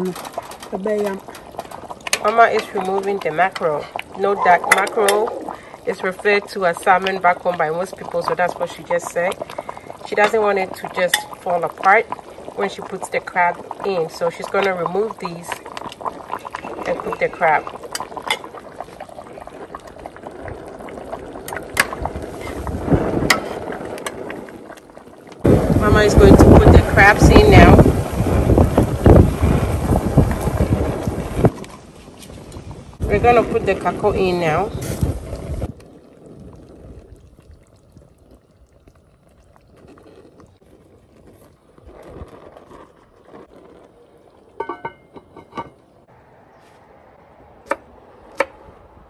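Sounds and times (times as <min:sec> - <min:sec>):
wind buffeting microphone: 0:00.0 - 0:24.8, 0:25.4 - 0:38.1
stew simmering with faint bubbling: 0:00.0 - 0:46.2
metal ladle clinking on pot: 0:44.6 - 0:45.8.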